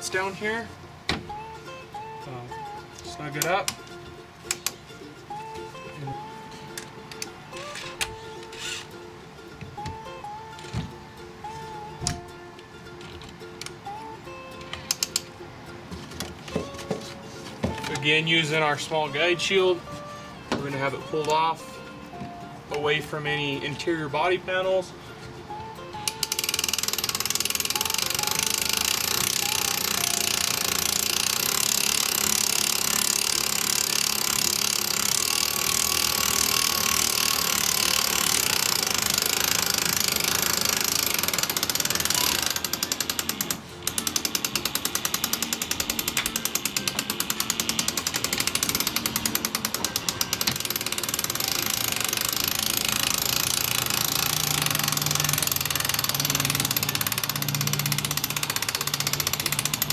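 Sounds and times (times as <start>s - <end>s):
cordless drill running: 26.2s - 59.9s.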